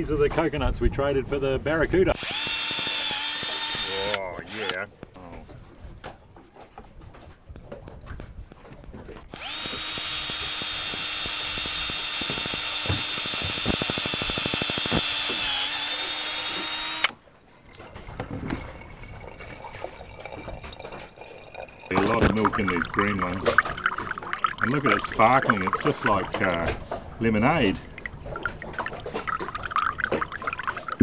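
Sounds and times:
cordless drill boring: 2.1 - 4.8, 9.3 - 17.2
water trickling into a glass: 17.4 - 31.0.

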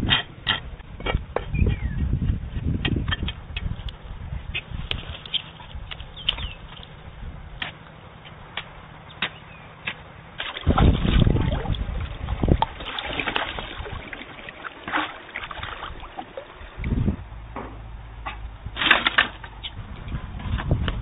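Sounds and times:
water splashing and sloshing: 9.9 - 19.6.

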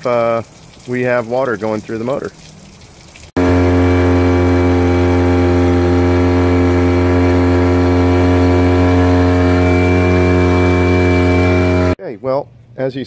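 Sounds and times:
outboard motor idling: 3.3 - 12.0.

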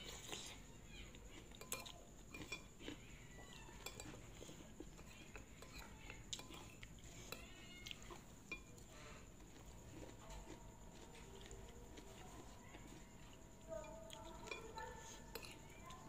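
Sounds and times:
soft chewing: 0.0 - 16.0
cutlery clinking on ceramic plate: 1.6 - 2.7, 3.7 - 4.2.

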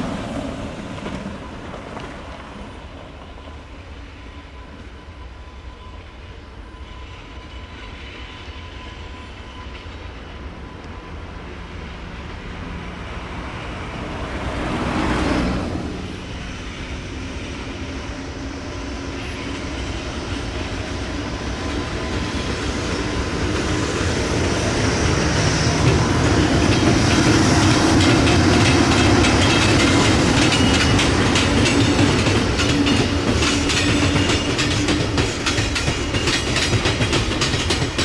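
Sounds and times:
electric locomotive pulling away: 0.0 - 38.0
wheels on rails: 17.6 - 38.0.

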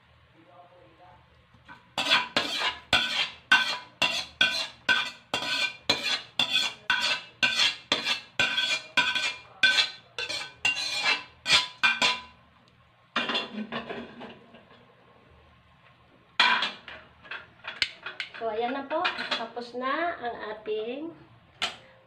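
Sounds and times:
metal spatula scraping and clanking: 1.7 - 12.4, 13.2 - 14.8, 16.4 - 19.6.

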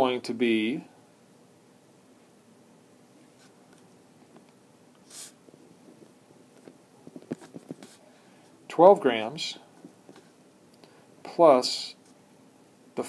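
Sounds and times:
short hiss: 5.0 - 5.4.

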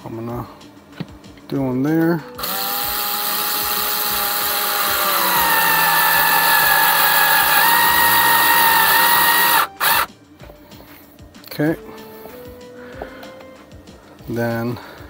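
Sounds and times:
electric screwdriver motor whine: 2.4 - 10.1.

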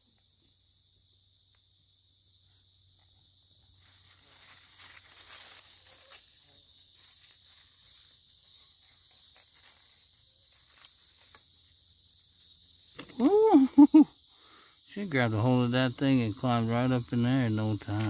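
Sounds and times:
insects trilling: 0.0 - 18.0
soft ticks and rustles: 3.8 - 6.3.

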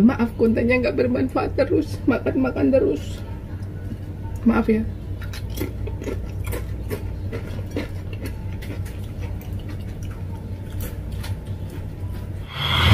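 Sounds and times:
steady low hum: 0.0 - 12.9
chips being chewed: 5.2 - 12.4.

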